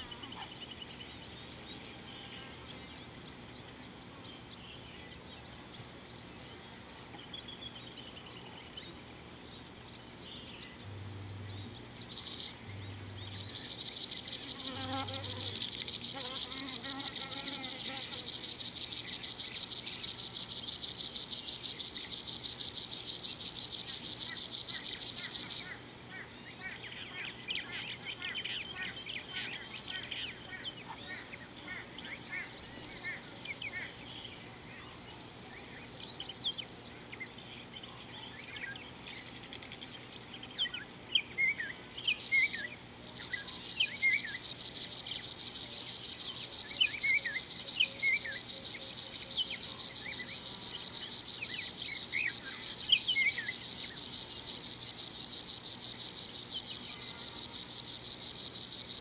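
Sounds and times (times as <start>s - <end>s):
birds chirping: 7.2s - 25.8s
high insect trill: 10.8s - 25.8s, 42.0s - 59.0s.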